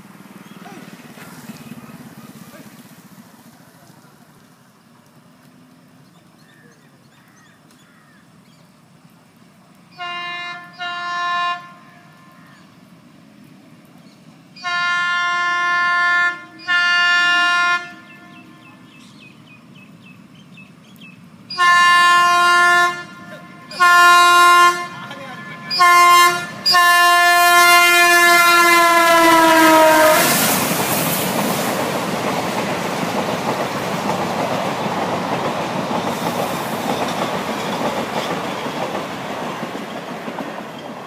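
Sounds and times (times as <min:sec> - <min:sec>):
train horn blasts: 0:09.9 - 0:12.7, 0:14.6 - 0:19.0, 0:21.5 - 0:30.6.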